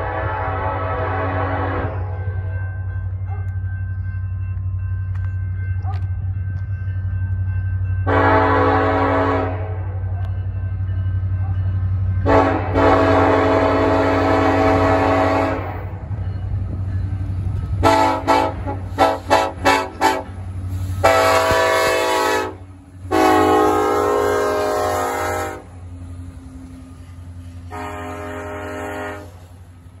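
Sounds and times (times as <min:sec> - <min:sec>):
locomotive air horn blasts: 0:00.0 - 0:02.4, 0:08.0 - 0:10.0, 0:12.2 - 0:15.9, 0:17.8 - 0:25.8, 0:27.6 - 0:29.5
train rumbling past: 0:00.0 - 0:30.0.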